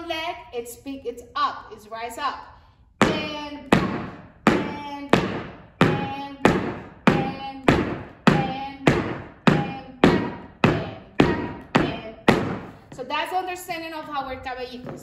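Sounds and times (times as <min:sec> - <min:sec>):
heeled shoes striking floor: 0:03.0 - 0:13.2, 0:14.7 - 0:15.0.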